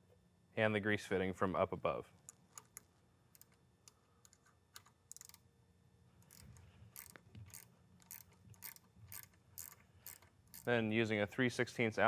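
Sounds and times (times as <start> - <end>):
metallic clicks of hand tools: 2.2 - 5.4, 6.2 - 10.7.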